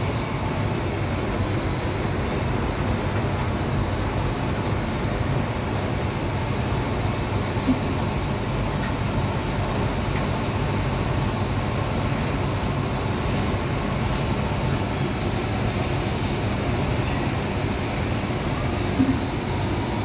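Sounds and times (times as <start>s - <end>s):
kitchen equipment roaring: 12.1s - 20.0s.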